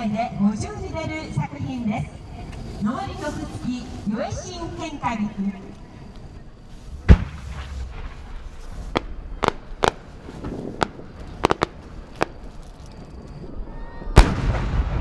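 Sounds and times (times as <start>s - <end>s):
firework pops and cracks: 7.0s - 13.4s, 14.2s - 15.0s.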